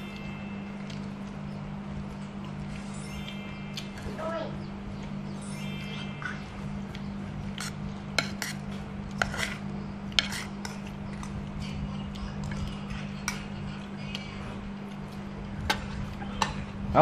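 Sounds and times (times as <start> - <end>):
steady low hum: 0.0 - 17.0
spoons clinking against bowls: 5.6 - 8.6.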